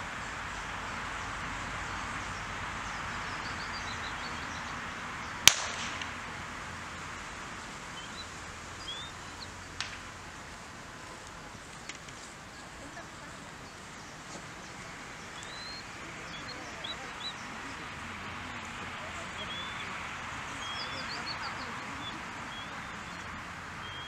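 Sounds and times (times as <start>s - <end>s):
outdoor background noise: 0.0s - 24.0s
gunshot with echo: 5.4s - 6.3s
faint bird chirps: 7.9s - 9.8s, 11.1s - 24.0s.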